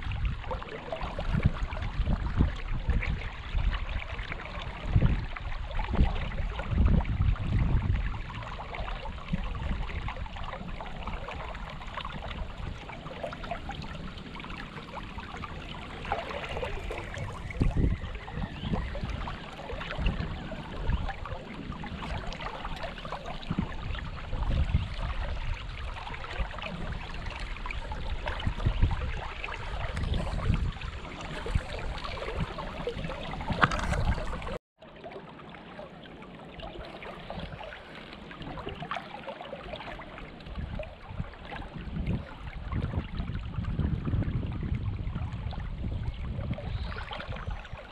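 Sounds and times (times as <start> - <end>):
water running over rocks: 0.0 - 47.9.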